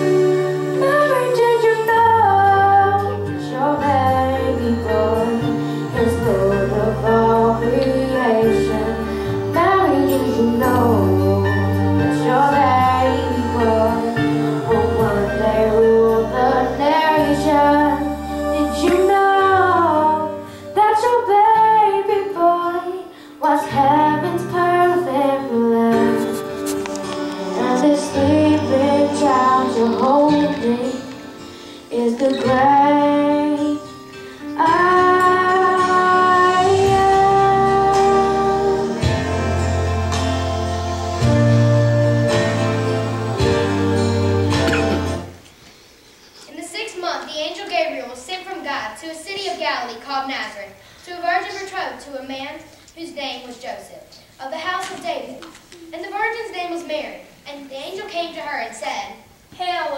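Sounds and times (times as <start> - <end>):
instrumental accompaniment with bass: 0.0 - 21.9, 23.7 - 45.5
girl singing into a microphone: 0.8 - 39.2.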